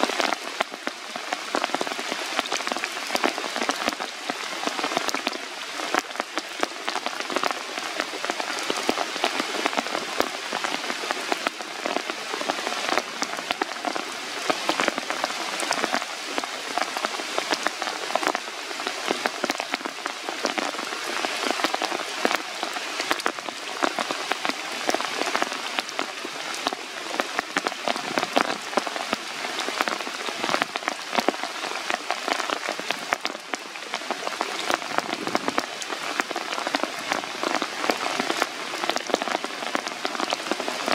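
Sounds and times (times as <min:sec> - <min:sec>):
rain falling on leaves: 0:00.0 - 0:40.9.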